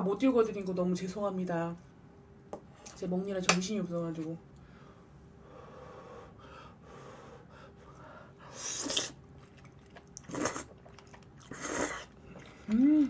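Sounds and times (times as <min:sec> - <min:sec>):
noodles being slurped: 0:08.5 - 0:13.0.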